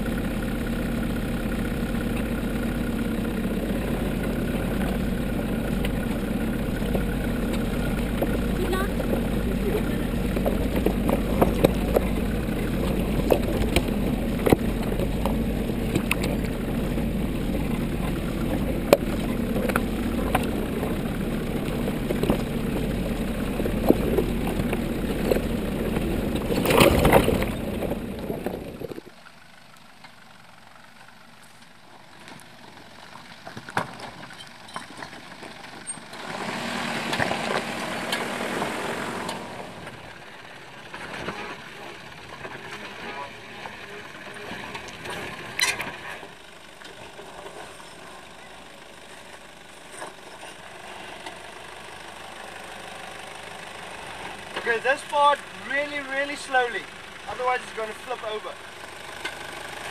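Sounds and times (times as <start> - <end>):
engine drone: 0.0 - 59.9.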